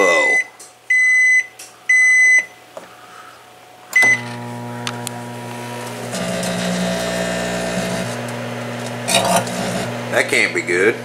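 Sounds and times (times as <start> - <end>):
microwave keypad beeps: 0.2 - 2.5, 4.0 - 4.3
harsh electrical buzz: 3.9 - 11.0
microwave oven humming: 4.0 - 11.0.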